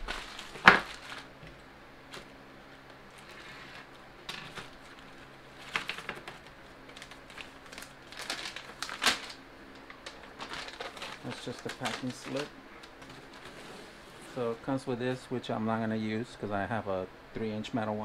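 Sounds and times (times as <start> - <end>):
plastic bag and paper rustling: 0.0 - 2.4, 3.0 - 14.6.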